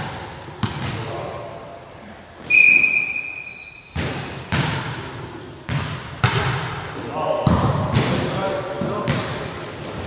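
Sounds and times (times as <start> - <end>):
referee's whistle: 2.5 - 3.9.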